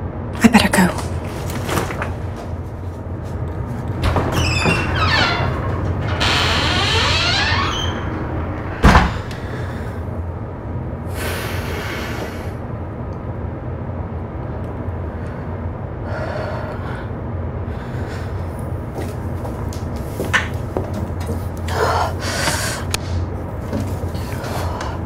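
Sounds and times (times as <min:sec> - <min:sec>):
ship engines rumbling: 0:00.0 - 0:25.0
door banging: 0:04.0 - 0:09.5.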